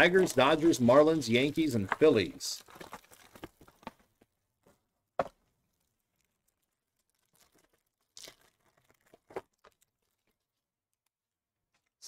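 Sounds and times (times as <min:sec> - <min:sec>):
foil wrapper crinkling and tearing: 0:02.6 - 0:04.0, 0:05.7 - 0:11.0.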